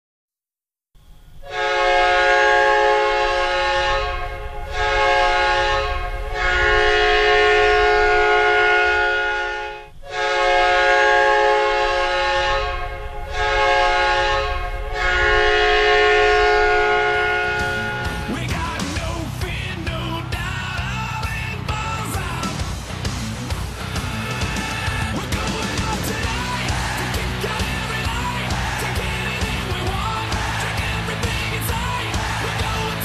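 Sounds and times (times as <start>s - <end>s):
hockey goal horn blasts: 1.4s - 18.4s.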